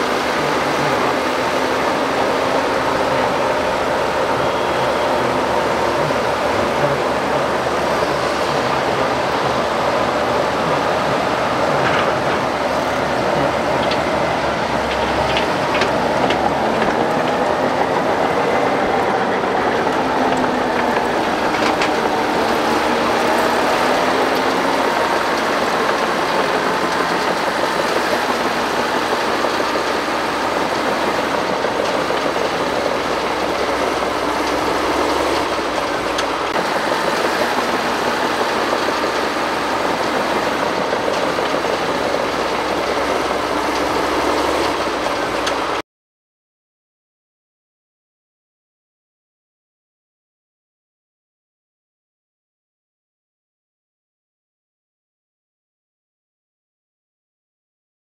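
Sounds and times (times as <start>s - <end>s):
excavator diesel engines running: 0.0s - 45.8s.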